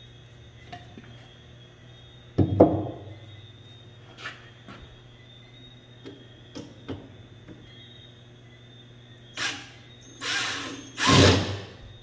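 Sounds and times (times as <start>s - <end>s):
cordless drill boring into wood: 9.4s - 11.6s.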